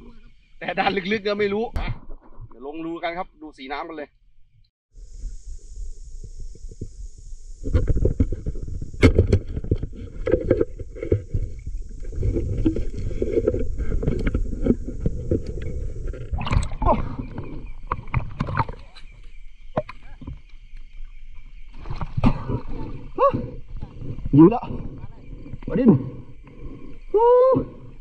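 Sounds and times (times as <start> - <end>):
steady high whine: 4.9 - 28.0
water sloshing and splashing: 9.5 - 19.2.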